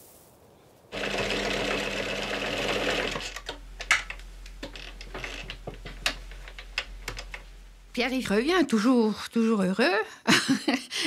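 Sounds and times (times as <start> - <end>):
sewing machine stitching: 0.9 - 5.6.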